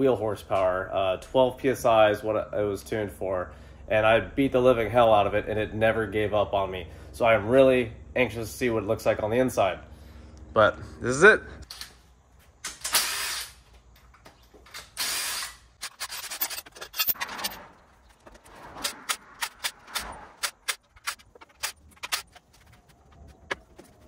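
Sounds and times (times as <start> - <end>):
hand tools clicking and knocking: 14.0 - 24.0
power tool running: 14.9 - 16.2.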